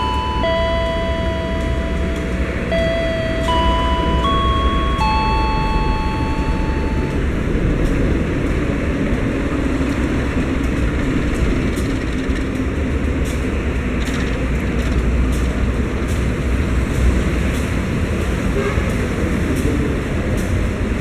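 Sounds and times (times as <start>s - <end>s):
held multi-note tone: 0.0s - 7.4s
locomotive rumbling on rails: 0.0s - 21.0s.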